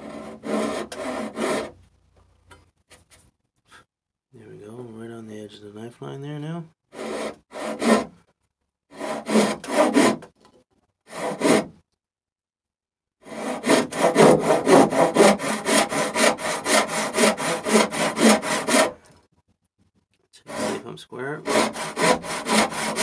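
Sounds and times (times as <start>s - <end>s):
hand saw cutting wood: 0.0s - 1.8s, 6.9s - 8.1s, 8.9s - 10.3s, 11.1s - 11.8s, 13.2s - 19.1s, 20.4s - 23.0s.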